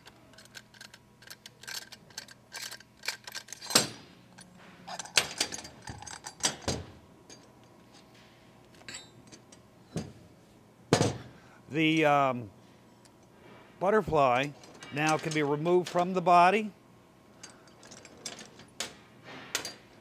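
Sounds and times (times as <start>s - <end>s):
metal valve parts clicking and clinking: 0.0s - 7.6s, 14.4s - 16.1s, 17.4s - 20.0s.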